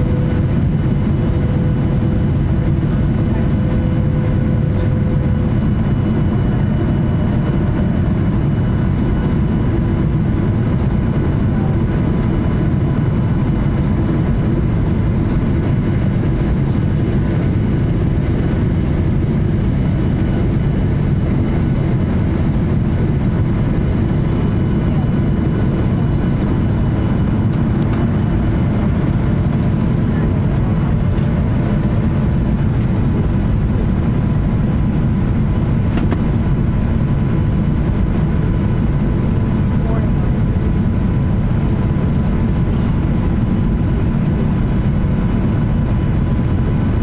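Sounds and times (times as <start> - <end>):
airliner cabin engine rush: 0.0 - 47.0.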